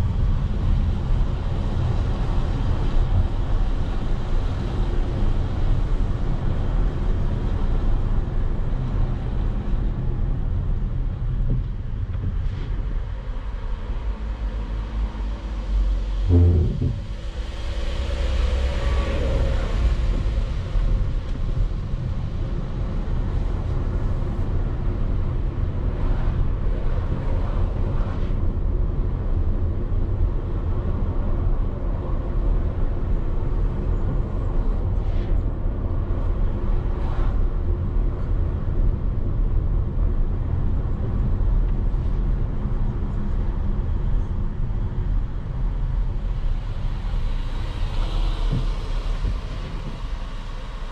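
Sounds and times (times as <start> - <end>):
vehicle rumble on board: 0.0 - 50.9.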